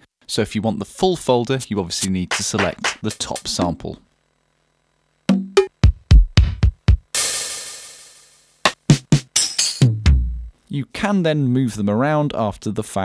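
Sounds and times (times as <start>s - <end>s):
drum sampler hits: 2.3s - 3.9s, 5.3s - 10.5s
cymbal crash: 7.1s - 8.7s.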